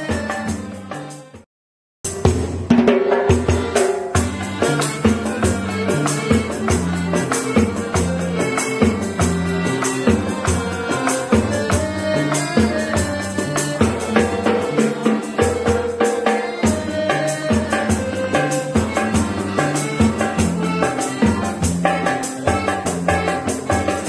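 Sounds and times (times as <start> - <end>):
calypso band playing: 0.0 - 1.4, 2.1 - 24.0
hand drums: 0.0 - 1.4, 2.1 - 24.0
jingling percussion: 0.0 - 1.4, 3.1 - 24.0
accordion: 0.0 - 1.5, 3.2 - 24.0
electric bass: 3.6 - 15.1, 16.6 - 24.0.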